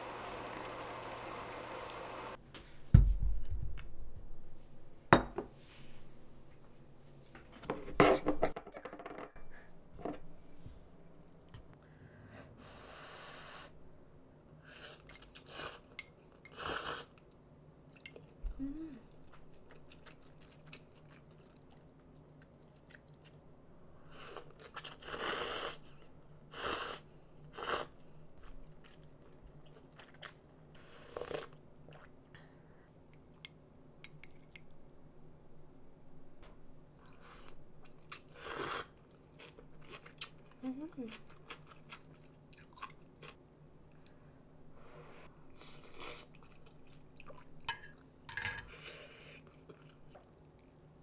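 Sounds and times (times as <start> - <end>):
dishes clinking: 47.7 - 48.7.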